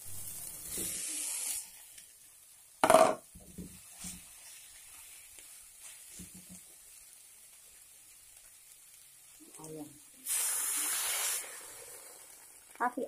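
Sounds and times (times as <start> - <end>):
leaves sizzling in a wok: 0.0 - 13.0
spatula stirring: 3.6 - 6.8.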